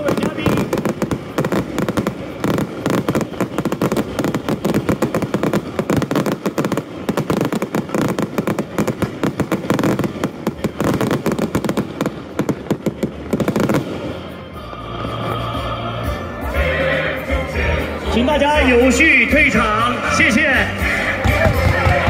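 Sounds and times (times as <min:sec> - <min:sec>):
fireworks crackling and banging: 0:00.0 - 0:22.0.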